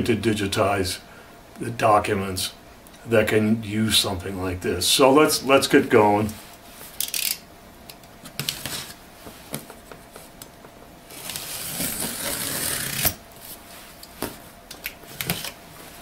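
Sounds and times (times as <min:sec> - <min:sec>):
box cutter scraping tape: 0:11.1 - 0:13.2.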